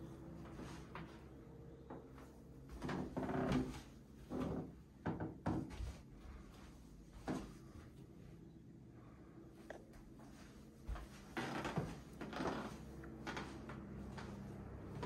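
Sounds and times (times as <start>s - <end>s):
footsteps on carpet: 9.9s - 15.0s.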